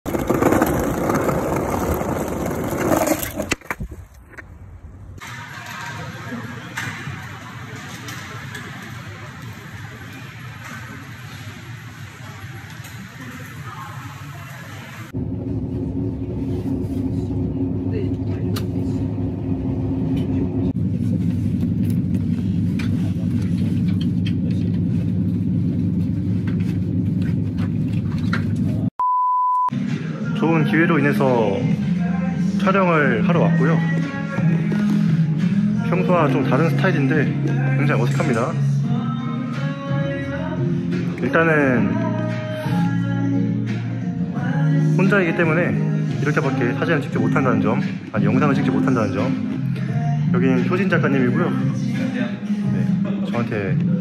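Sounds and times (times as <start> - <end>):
skateboard wheels rolling on brick: 0.1 - 4.7
train rumbling inside cabin: 15.2 - 28.9
steady high beep: 29.0 - 29.7.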